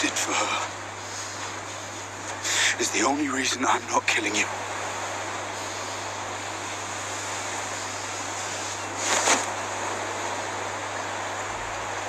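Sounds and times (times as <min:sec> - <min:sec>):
low steady hum: 0:00.0 - 0:12.0
sea surf washing on beach: 0:00.0 - 0:12.0.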